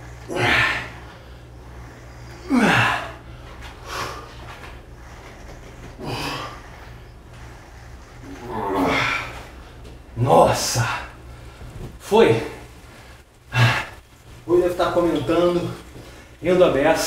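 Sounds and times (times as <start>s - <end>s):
man breathing heavily: 0.0s - 16.8s
steady low hum: 0.0s - 17.0s
man grunting: 0.3s - 1.0s, 2.4s - 3.2s, 8.3s - 9.3s, 13.5s - 14.0s.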